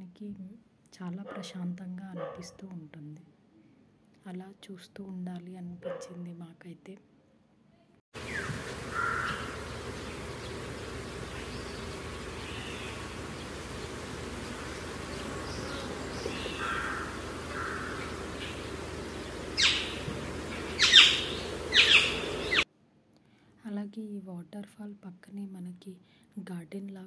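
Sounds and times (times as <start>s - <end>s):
waterfall roaring: 8.2s - 22.6s
birds calling: 8.2s - 22.7s.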